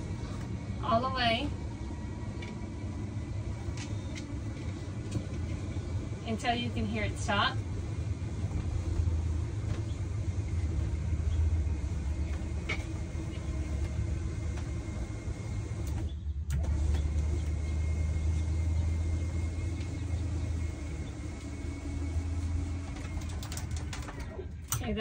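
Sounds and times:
motor humming with faint whine: 0.0s - 25.0s.

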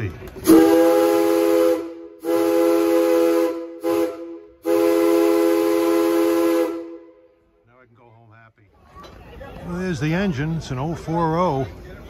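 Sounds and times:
steam locomotive whistle blasts: 0.4s - 7.1s.

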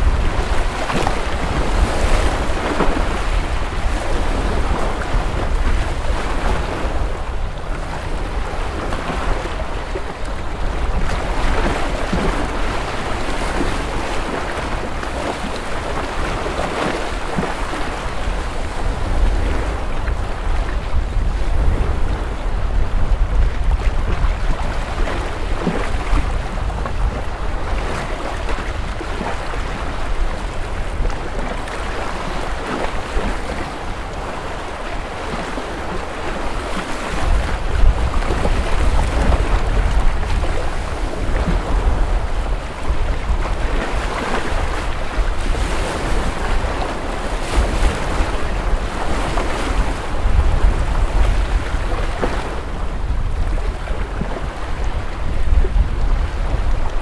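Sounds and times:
small waves washing on shore: 0.0s - 57.0s
wind rumbling on microphone: 0.0s - 57.0s.

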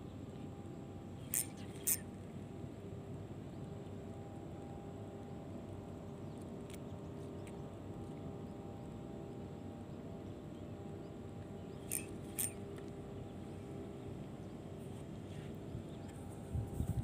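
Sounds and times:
boat engine humming: 0.0s - 16.7s.

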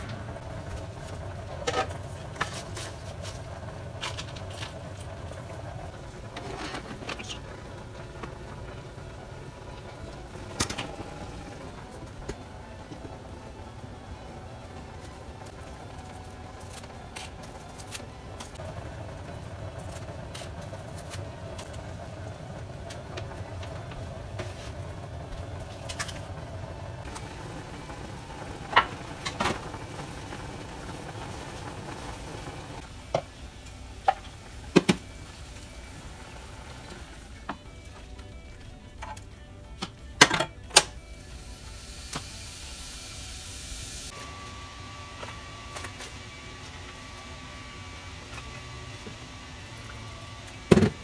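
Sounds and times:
stovetop hiss and hum: 0.0s - 51.0s
meat frying in a pan: 41.4s - 44.2s.

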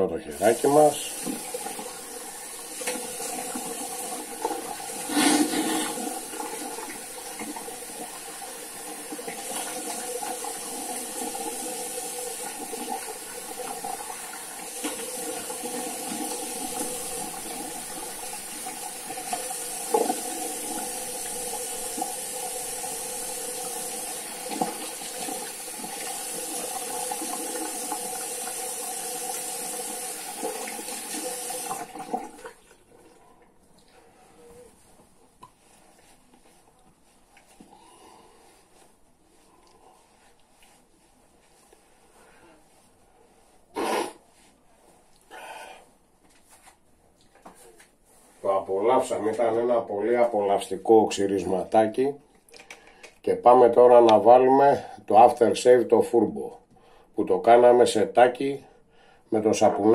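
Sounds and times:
tap water running into sink: 0.4s - 32.9s.

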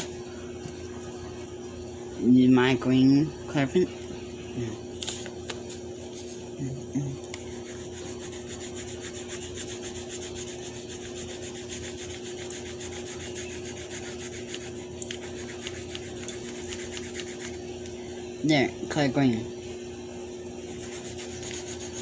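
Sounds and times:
pen scribbling on paper: 7.5s - 17.6s, 20.7s - 22.0s.

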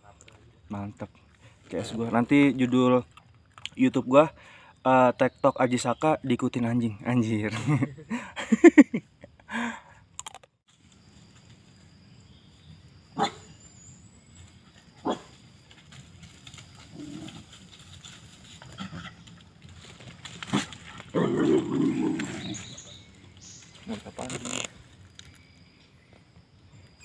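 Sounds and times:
dog barking: 13.2s - 13.5s, 15.0s - 15.3s.

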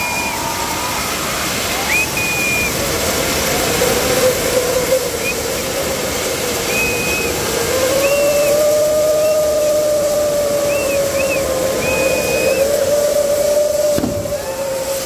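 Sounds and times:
low wavering whistle: 0.0s - 1.0s, 1.8s - 2.8s, 4.5s - 5.7s, 6.5s - 15.0s
fountain fireworks hissing: 0.0s - 15.0s
short high whistles: 1.8s - 2.8s.

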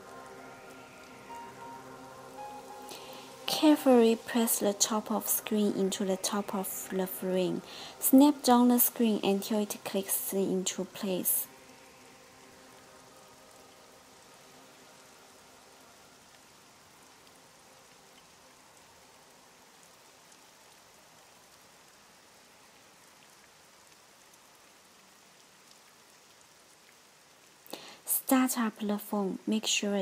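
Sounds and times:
faint tones: 0.0s - 16.0s.

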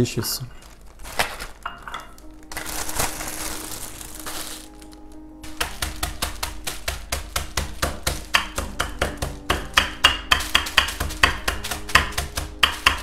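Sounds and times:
biscuits crunching: 0.4s - 9.5s
rolling pin knocking: 5.4s - 13.0s.

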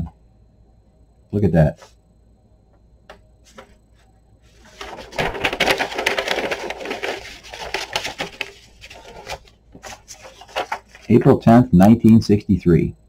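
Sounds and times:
paper sheets crackling and rustling: 3.5s - 11.4s.

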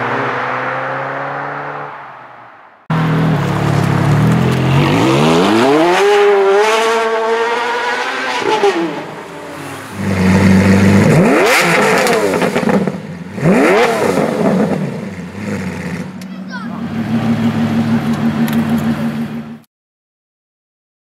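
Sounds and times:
sports car engine revving: 2.9s - 19.6s.

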